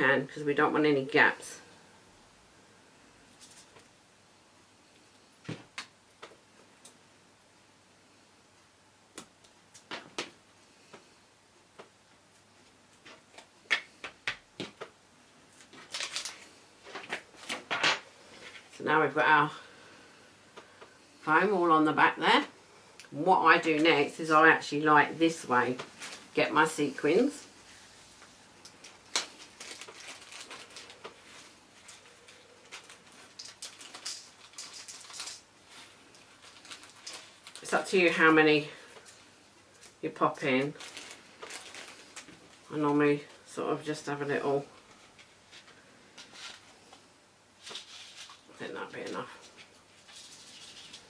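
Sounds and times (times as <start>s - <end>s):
sequins rustling and pattering: 27.7s - 40.0s, 40.6s - 43.5s, 44.7s - 47.0s, 47.6s - 51.0s
rustle of card: 44.8s - 47.0s, 47.6s - 51.0s.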